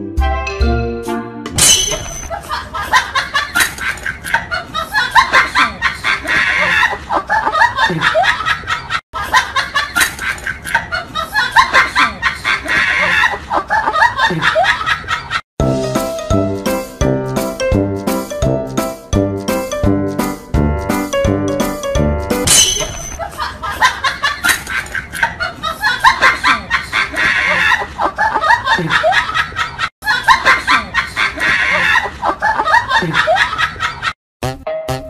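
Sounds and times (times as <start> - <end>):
group of people laughing: 2.3 - 15.4, 23.2 - 34.2.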